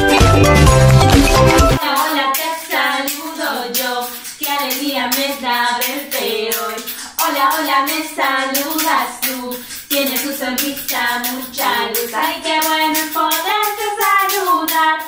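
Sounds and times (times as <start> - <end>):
hand claps: 0.0 - 1.8
woman singing: 1.8 - 15.0.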